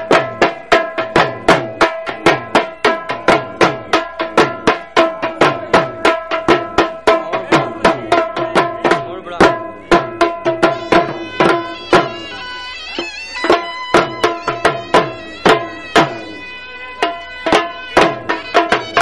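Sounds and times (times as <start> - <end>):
drum beaten in fast rhythm: 0.0 - 19.0
held note: 10.5 - 19.0.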